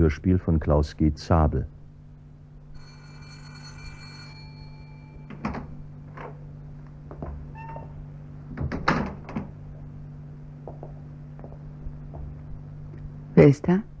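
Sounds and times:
steady low hum: 0:00.0 - 0:14.0
doorbell ringing: 0:02.7 - 0:06.1.

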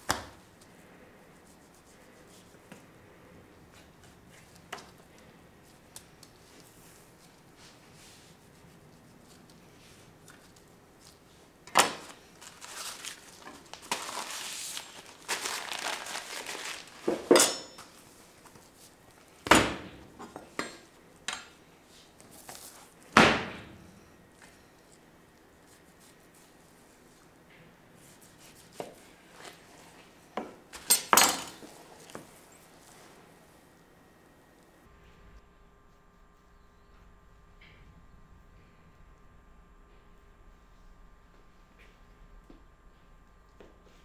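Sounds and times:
utensils clanging on metal griddle: 0:17.3 - 0:17.9.

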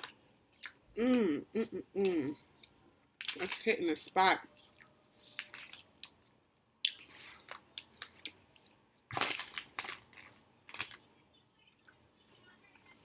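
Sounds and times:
person chewing food: 0:04.6 - 0:11.0.

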